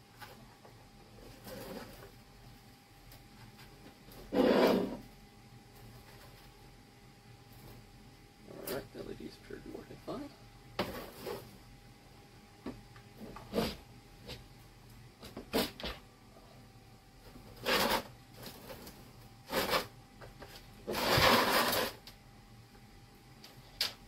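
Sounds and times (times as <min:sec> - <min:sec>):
parts and wiring rustling: 0:00.0 - 0:04.3, 0:05.0 - 0:06.8, 0:17.2 - 0:22.2.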